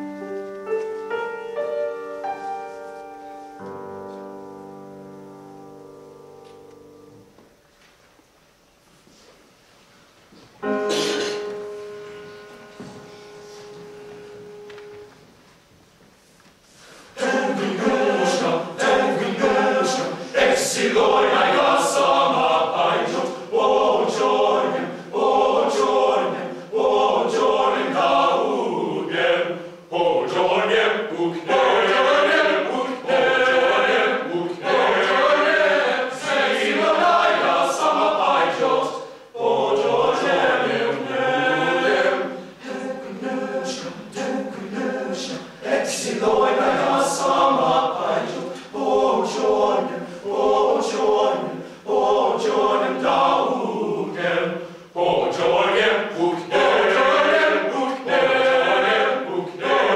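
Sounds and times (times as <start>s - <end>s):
men's choir singing a cappella: 17.0s - 59.9s.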